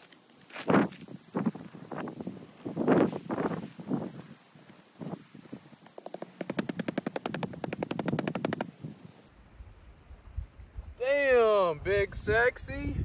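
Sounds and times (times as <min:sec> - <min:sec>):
tent fabric rustling: 0:00.0 - 0:08.5.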